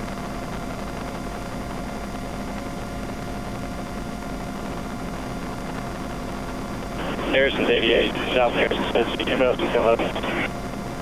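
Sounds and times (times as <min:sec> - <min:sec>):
helicopter cabin drone: 0:00.0 - 0:11.0
thin steady whine: 0:04.0 - 0:11.0.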